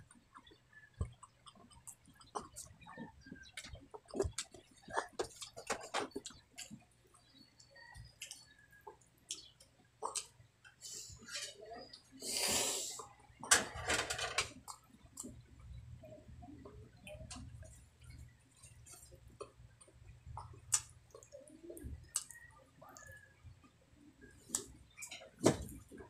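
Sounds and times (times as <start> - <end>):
person chewing wetly: 0.0 - 6.9, 7.6 - 10.4, 17.1 - 23.2
mouth smacks and clicks: 0.1 - 6.8, 18.9 - 22.4.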